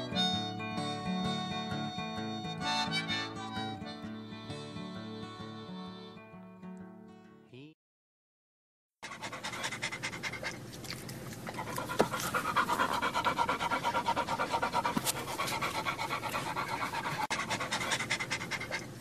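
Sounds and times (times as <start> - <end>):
song: 0.0 - 6.3
dog panting: 9.0 - 19.0.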